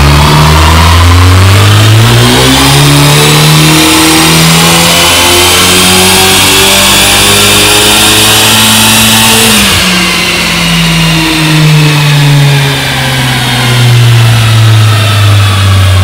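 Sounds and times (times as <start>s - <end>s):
car engine at high revs: 0.0s - 16.0s.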